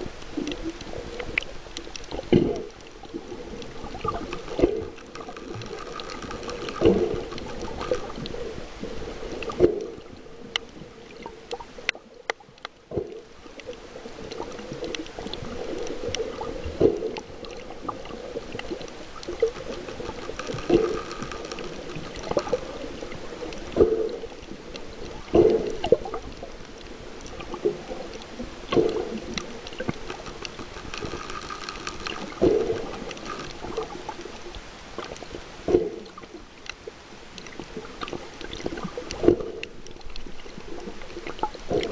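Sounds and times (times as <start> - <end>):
muffled underwater water noise: 0.0 - 41.9
water surge: 27.3 - 34.2.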